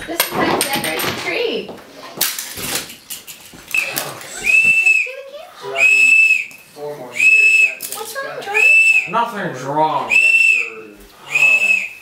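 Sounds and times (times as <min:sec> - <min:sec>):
toy whistle blasts: 0:03.8 - 0:05.1, 0:05.8 - 0:06.5, 0:07.2 - 0:07.9, 0:08.5 - 0:09.1, 0:10.1 - 0:12.0.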